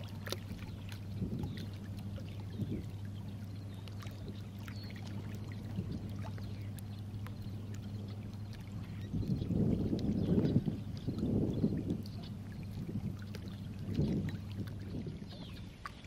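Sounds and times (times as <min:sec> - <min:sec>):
steady low hum: 0:00.0 - 0:16.0
waves lapping against rocks: 0:00.0 - 0:16.0
wind buffeting microphone: 0:00.0 - 0:16.0.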